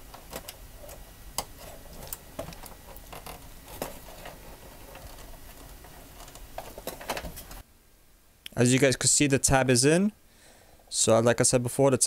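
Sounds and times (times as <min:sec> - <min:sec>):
wiring rustling: 0:00.0 - 0:07.6.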